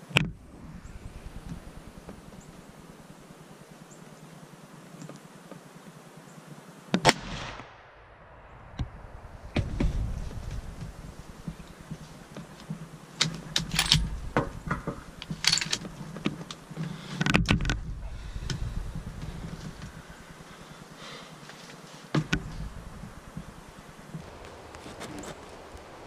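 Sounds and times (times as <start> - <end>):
gear handling clicks and rustles: 13.2 - 17.8, 24.2 - 26.0.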